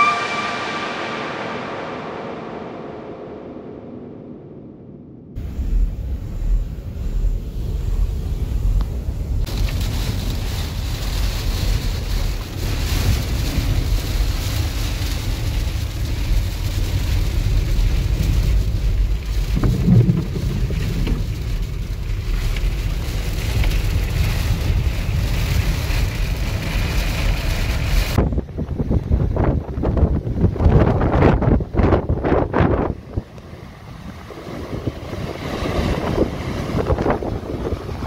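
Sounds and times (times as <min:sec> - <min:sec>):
storm wind buffeting van: 0:01.9 - 0:38.0
heavy rain on windscreen: 0:07.1 - 0:28.2
low thump: 0:19.5 - 0:21.5.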